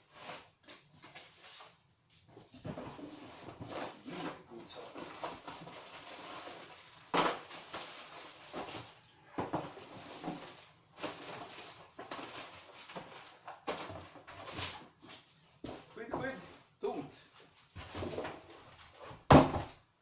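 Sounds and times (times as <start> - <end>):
plastic wrapping rustling: 2.6 - 15.4
loud plastic crackle: 4.9 - 14.3.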